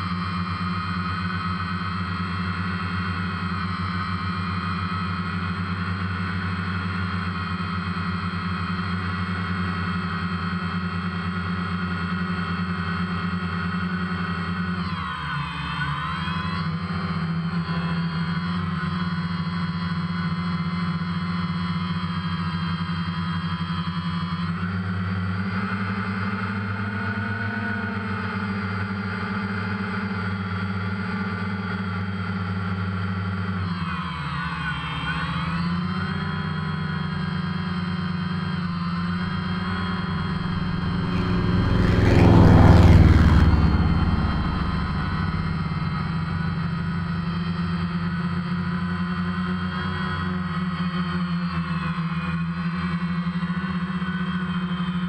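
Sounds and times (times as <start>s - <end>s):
drone propellers humming: 38.7s - 48.4s.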